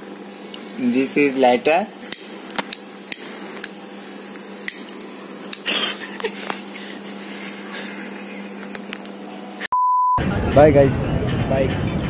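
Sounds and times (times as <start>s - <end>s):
steady low hum: 0.0s - 12.0s
breathy hiss of blowing: 2.0s - 4.9s.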